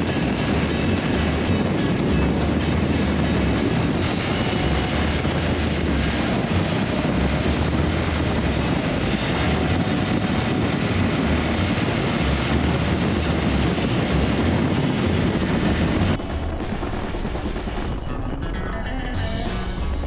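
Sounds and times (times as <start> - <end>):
motorcycle engine drone: 0.0 - 20.0
wind and road noise: 0.0 - 20.0.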